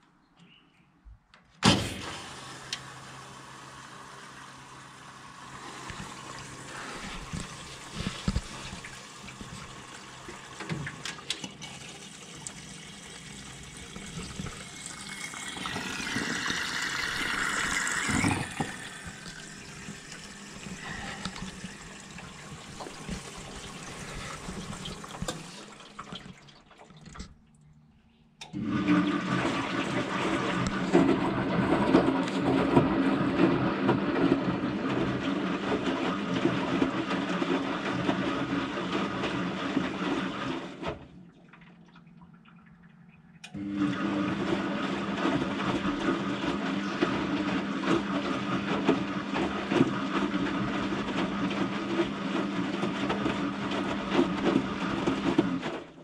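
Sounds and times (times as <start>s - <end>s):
washing machine filling with water: 1.6s - 27.6s, 28.4s - 56.0s
washing machine drum tumbling: 12.1s - 26.8s.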